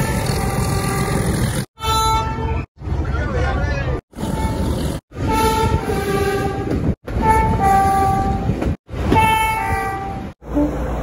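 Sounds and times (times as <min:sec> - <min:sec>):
low rumble of train: 0:00.0 - 0:11.0
two-tone train horn: 0:05.2 - 0:08.5, 0:09.1 - 0:10.9.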